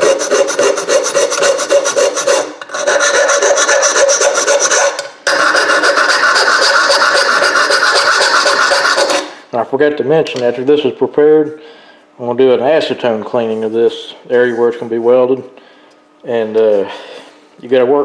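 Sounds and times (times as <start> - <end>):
metal file scraping aluminum: 0.0 - 9.4.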